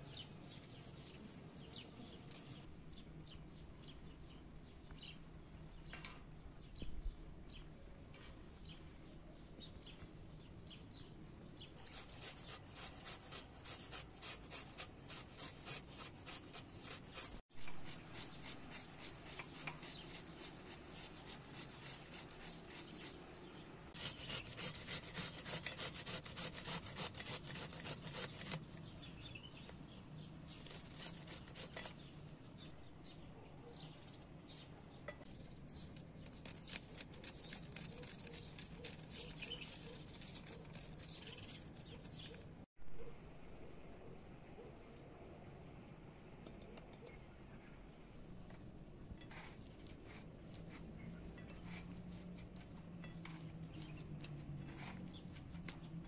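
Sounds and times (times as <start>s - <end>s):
onion grating on metal grater: 11.8s - 23.2s, 23.9s - 28.8s, 30.5s - 32.1s, 36.0s - 42.5s, 49.2s - 55.9s.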